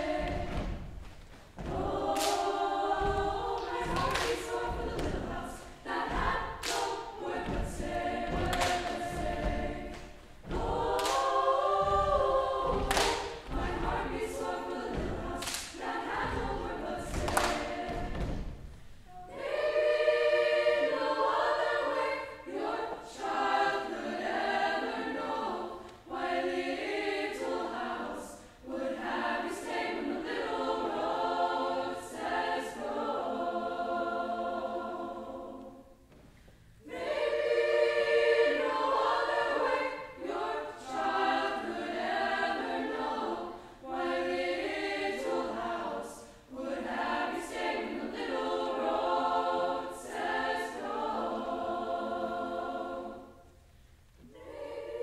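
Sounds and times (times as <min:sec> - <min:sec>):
girls' choir singing: 0:00.0 - 0:36.1, 0:36.8 - 0:55.0.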